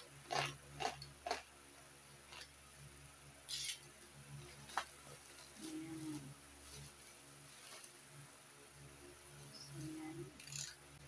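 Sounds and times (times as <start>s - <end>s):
plastic wrapping crinkling: 4.4s - 8.0s.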